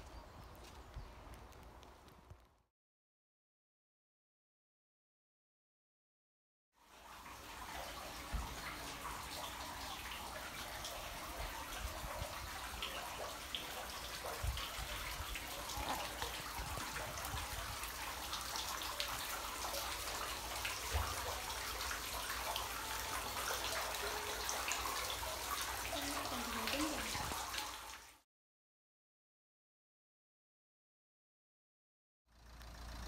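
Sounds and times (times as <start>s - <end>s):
fountain water splashing: 7.0s - 28.1s.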